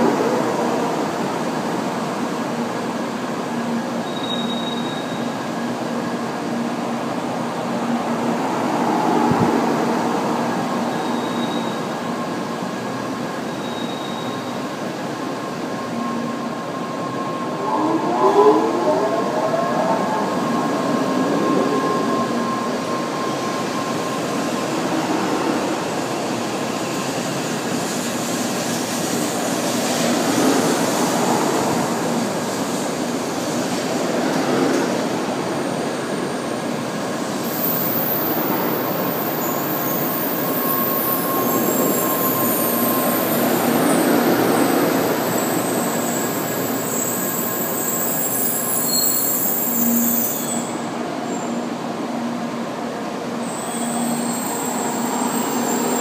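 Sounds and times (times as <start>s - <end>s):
high-pitched squeal: 53.4s - 56.0s.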